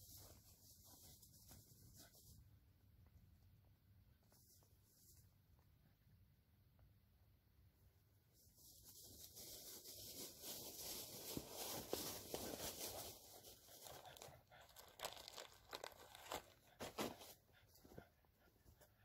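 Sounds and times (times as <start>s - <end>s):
footsteps through dry leaves: 8.9s - 13.6s.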